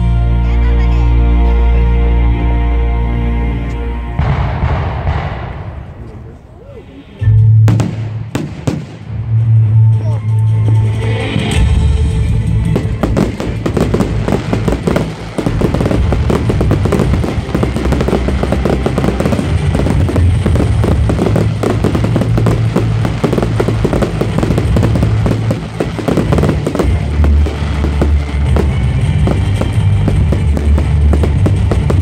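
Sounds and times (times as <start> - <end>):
fireworks crackling and bursting: 4.2 - 6.0, 7.6 - 9.7, 11.6 - 32.0
music with heavy bass: 9.1 - 32.0.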